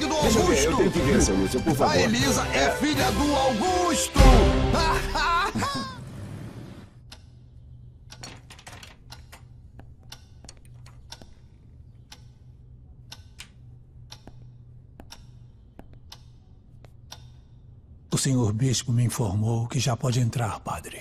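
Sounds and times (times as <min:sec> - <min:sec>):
low steady hum: 0:05.1 - 0:21.0.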